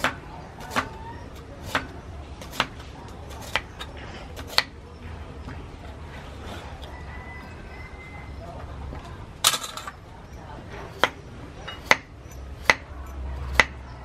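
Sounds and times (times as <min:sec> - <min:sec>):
knife chopping carrot on wood: 0:00.0 - 0:04.8, 0:11.8 - 0:13.9.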